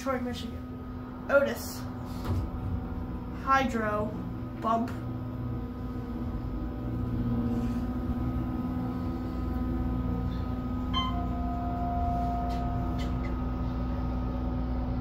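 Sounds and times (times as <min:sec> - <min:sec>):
elevator hum: 0:00.0 - 0:15.0
elevator chime: 0:10.0 - 0:13.8.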